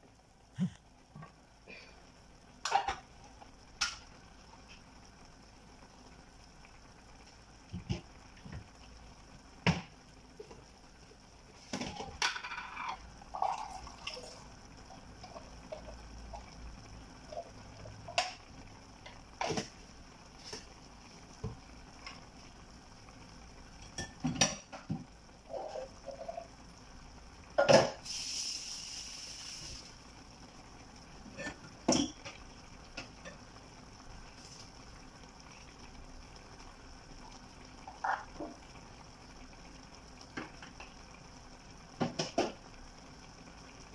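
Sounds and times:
stew simmering in a pan: 0.0 - 43.9
short hiss: 27.9 - 30.0.

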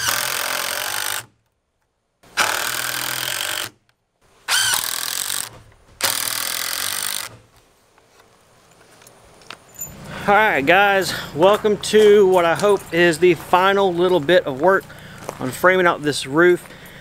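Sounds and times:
impact driver driving screws: 0.0 - 1.5, 2.3 - 3.9, 4.5 - 7.5.

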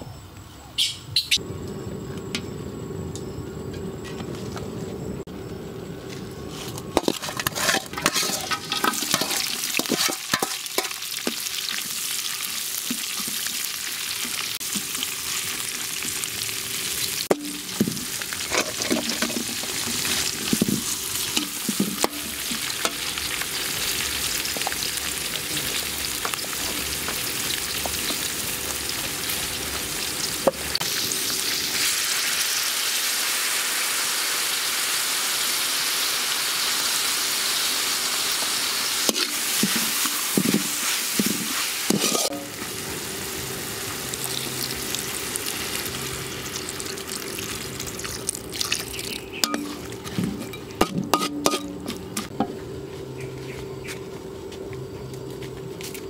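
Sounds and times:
metal spatula scraping wok: 6.5 - 11.3, 39.1 - 42.6
food sizzling in hot oil: 7.0 - 50.6.

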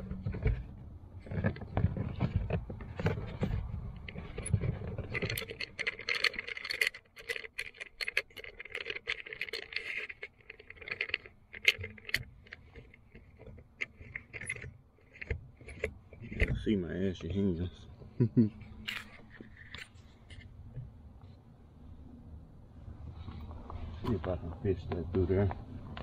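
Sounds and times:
wire and plastic trim rattling: 0.0 - 17.6.

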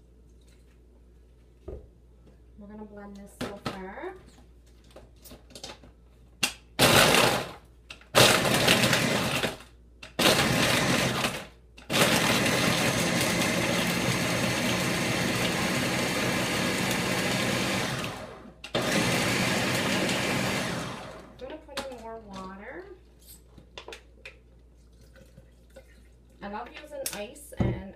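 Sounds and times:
blender crushing ice: 6.8 - 21.4.

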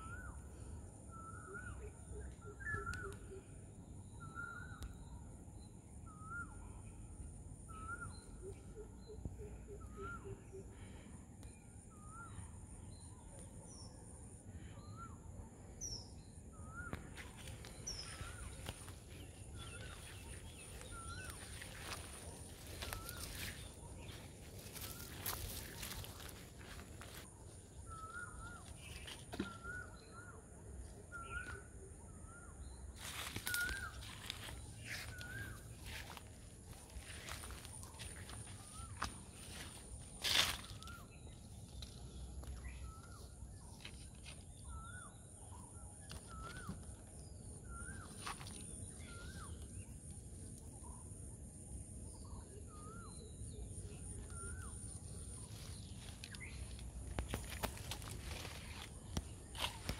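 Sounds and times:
bird whistled call: 1.1 - 3.4, 7.7 - 10.6, 27.9 - 30.4
rustle in undergrowth: 17.2 - 29.8, 33.0 - 42.9, 54.0 - 59.9.

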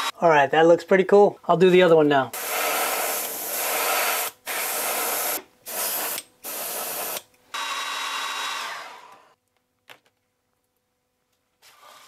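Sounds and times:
airbrush spraying paint: 2.4 - 7.2.

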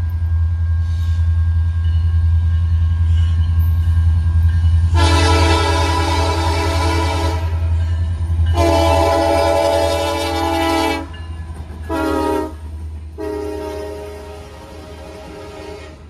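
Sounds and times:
locomotive air horn chord: 4.9 - 7.8, 8.5 - 11.2, 11.9 - 16.0.

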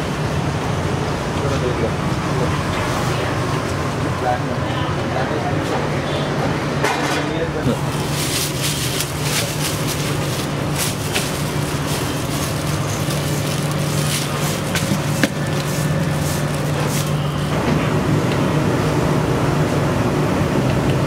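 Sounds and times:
steady low hum: 7.5 - 19.1
bag rustling: 7.8 - 17.5.

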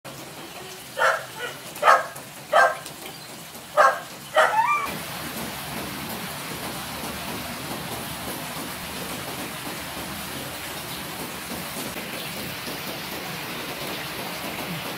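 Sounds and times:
rain hissing: 0.1 - 14.9
dogs barking: 0.8 - 3.0, 3.7 - 4.9
dog whining: 3.8 - 5.0.

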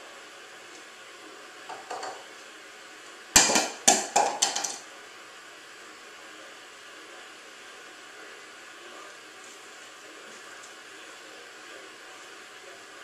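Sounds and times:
small object bouncing on tile floor: 1.7 - 2.2, 3.4 - 4.8.

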